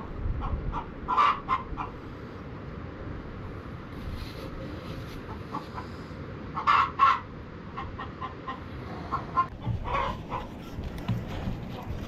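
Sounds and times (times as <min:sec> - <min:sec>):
chicken clucking: 0:05.2 - 0:06.0, 0:06.6 - 0:12.0.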